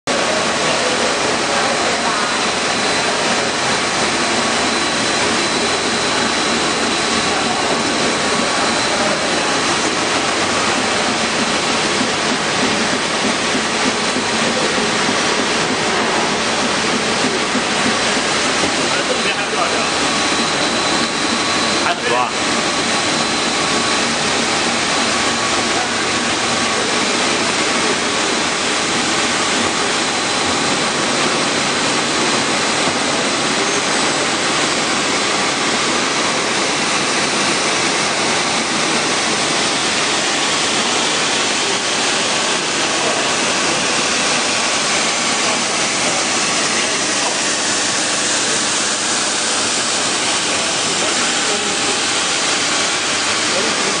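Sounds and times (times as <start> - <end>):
machinery rushing noise: 0.1 - 54.0.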